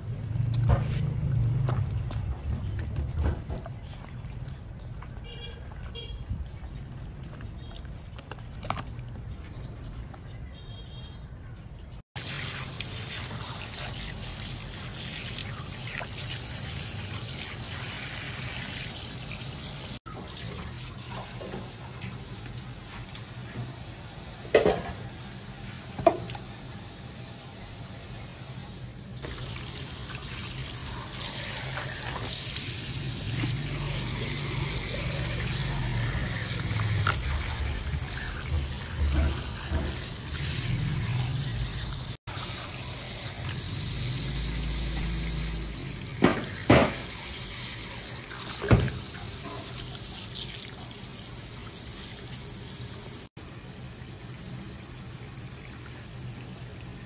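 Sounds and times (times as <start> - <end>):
tap water splashing in sink: 46.2 - 47.2, 48.3 - 49.9.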